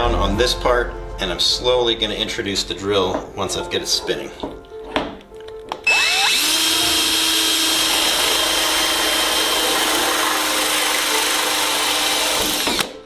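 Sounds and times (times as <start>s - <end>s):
power drill drilling metal: 5.8s - 12.9s.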